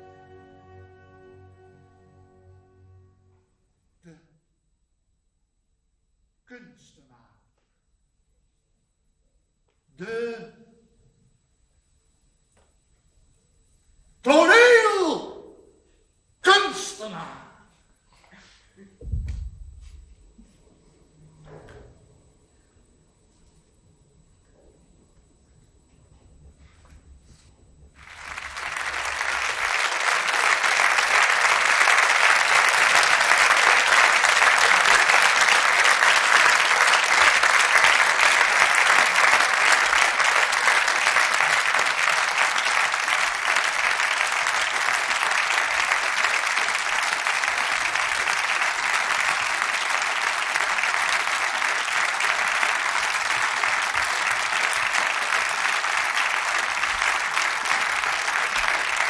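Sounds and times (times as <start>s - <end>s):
audience applauding: 26.6s - 59.0s.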